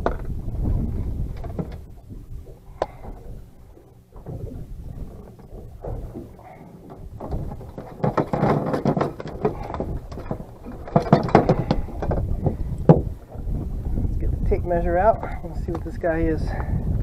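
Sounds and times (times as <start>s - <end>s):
landing net rustling and scraping: 3.9s - 13.1s.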